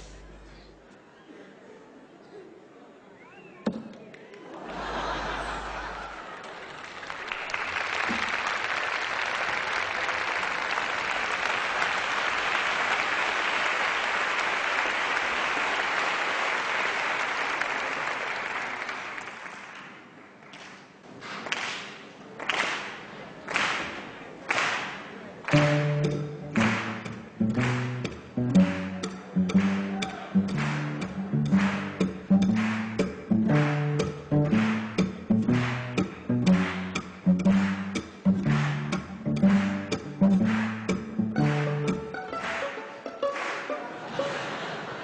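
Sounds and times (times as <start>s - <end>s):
audience applauding: 4.4s - 20.0s, 25.5s - 45.0s
sharp single claps: 23.5s - 42.7s.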